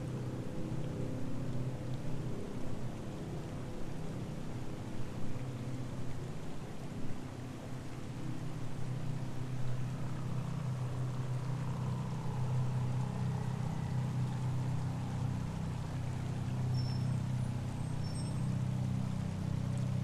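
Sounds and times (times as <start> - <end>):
rushing water-like noise: 0.0 - 20.0.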